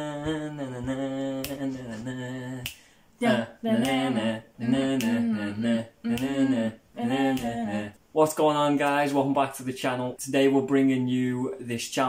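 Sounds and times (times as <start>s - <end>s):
voices singing: 0.0s - 9.3s
finger snaps: 1.4s - 3.0s, 5.0s - 5.2s, 6.1s - 6.4s, 7.3s - 7.6s.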